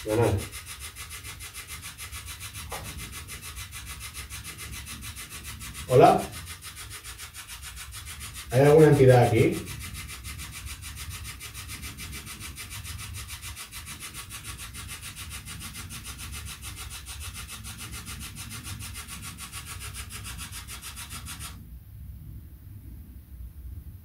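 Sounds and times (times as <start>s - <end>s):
pulsing radio static: 0.0s - 0.6s, 8.5s - 9.7s.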